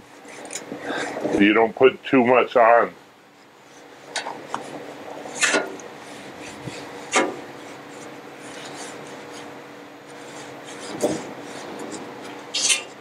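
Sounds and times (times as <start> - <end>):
metal tongs scraping a griddle: 10.1 - 13.0.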